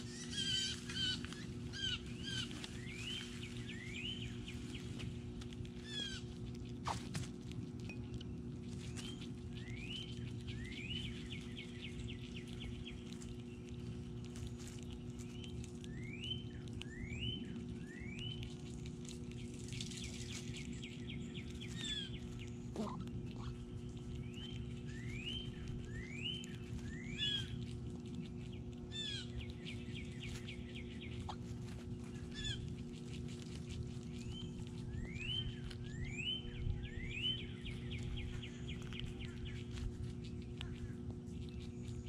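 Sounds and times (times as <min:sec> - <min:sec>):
steady low hum: 0:00.0 - 0:42.0
songbird whistling: 0:24.3 - 0:27.6, 0:34.4 - 0:38.8.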